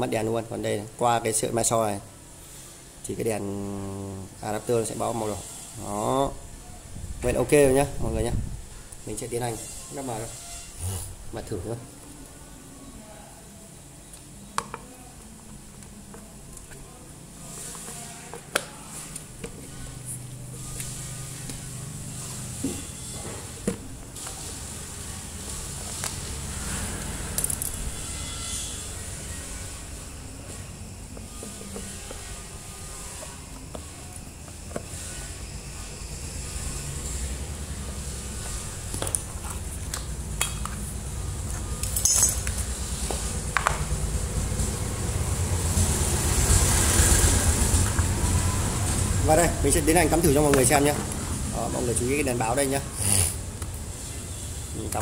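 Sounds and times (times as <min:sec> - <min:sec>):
motor traffic rumble: 0:25.0 - 0:28.2, 0:35.7 - 0:55.0.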